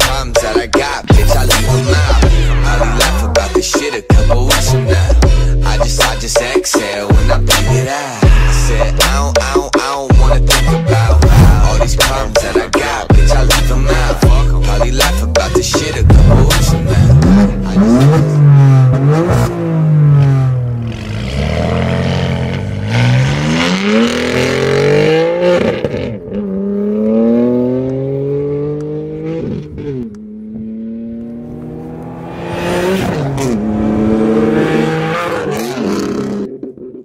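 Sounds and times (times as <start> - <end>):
engine revving hard: 10.6 - 36.5.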